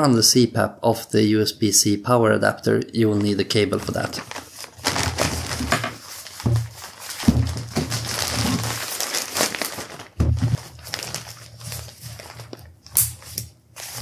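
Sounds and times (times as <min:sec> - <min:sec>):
plastic bags crinkling and rustling: 0:03.2 - 0:14.0.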